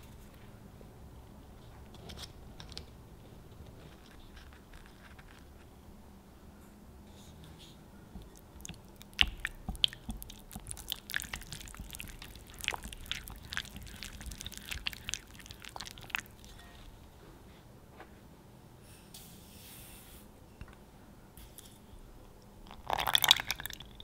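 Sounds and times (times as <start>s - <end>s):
sticky mixing sounds: 8.2s - 17.0s.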